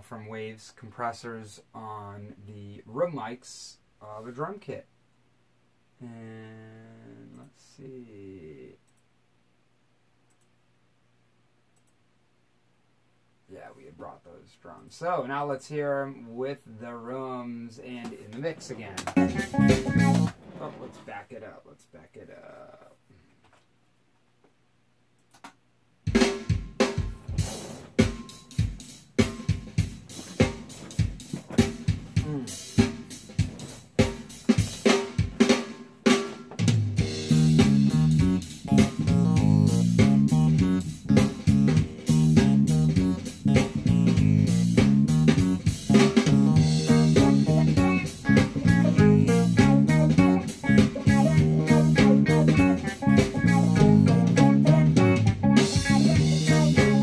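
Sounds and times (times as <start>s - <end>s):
drum kit playing: 18.6s - 20.4s, 26.0s - 57.0s
bass guitar: 19.0s - 20.4s, 36.6s - 57.0s
electric guitar: 19.1s - 20.3s, 37.0s - 57.0s.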